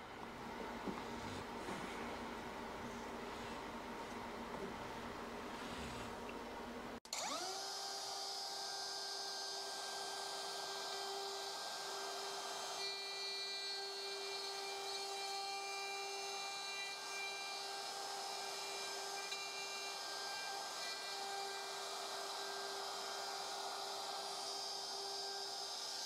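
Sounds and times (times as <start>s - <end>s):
router cutting wood: 7.0s - 26.0s.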